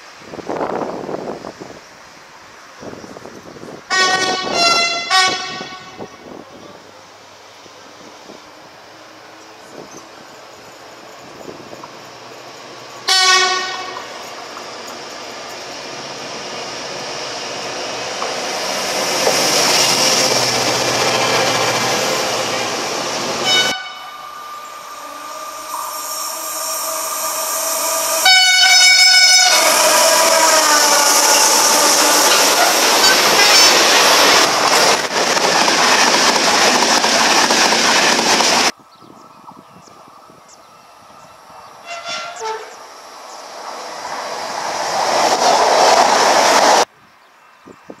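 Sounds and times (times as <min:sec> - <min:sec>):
train rumble: 0:00.1 - 0:38.8, 0:39.4 - 0:46.9
train horn: 0:03.9 - 0:06.4, 0:13.0 - 0:14.2, 0:23.4 - 0:32.7, 0:41.8 - 0:42.8
train passing clatter: 0:07.2 - 0:38.8, 0:41.7 - 0:46.9.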